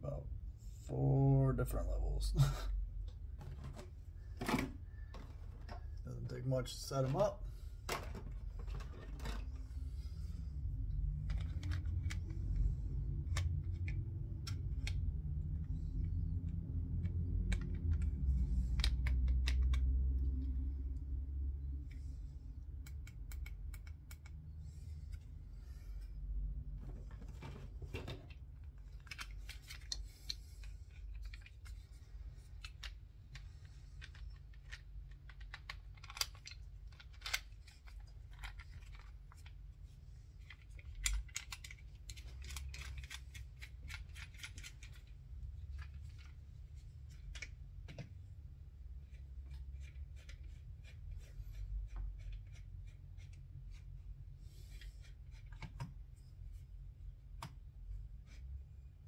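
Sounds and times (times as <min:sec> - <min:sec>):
low steady hum: 0:00.0 - 0:59.0
small parts and tools clicking: 0:11.1 - 0:20.6, 0:21.8 - 0:25.3, 0:28.2 - 0:39.6, 0:40.3 - 0:48.1.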